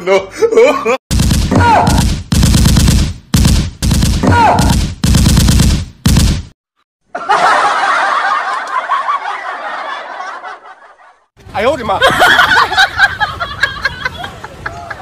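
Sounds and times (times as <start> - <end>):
machine-gun fire over loudspeaker: 1.1 - 6.4
people laughing: 7.1 - 15.0.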